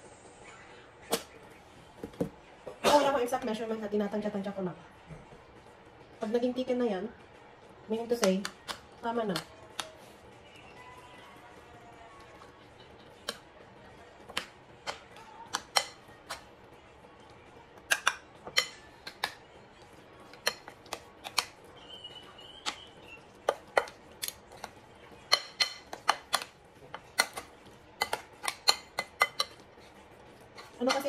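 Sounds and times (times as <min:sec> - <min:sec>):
spoon stirring thick batter: 0:09.8 - 0:31.0
spoon clinking against ceramic bowl: 0:25.3 - 0:26.4, 0:28.0 - 0:29.6.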